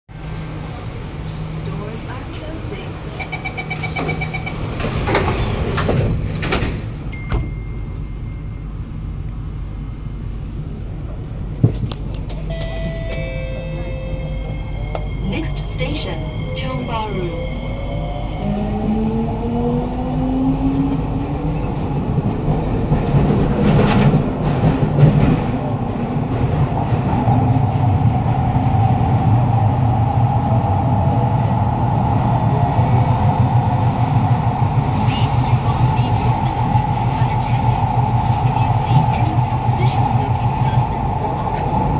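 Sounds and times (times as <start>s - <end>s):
train low hum: 0.1s - 41.9s
train clatters: 1.6s - 7.7s, 21.9s - 29.1s.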